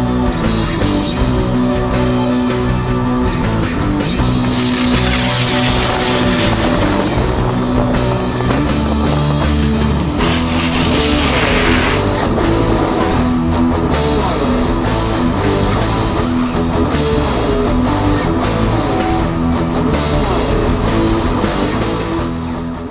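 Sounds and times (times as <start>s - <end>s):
rock music with distorted guitar: 0.0s - 22.9s
burst of hiss: 4.4s - 7.0s, 10.2s - 12.1s.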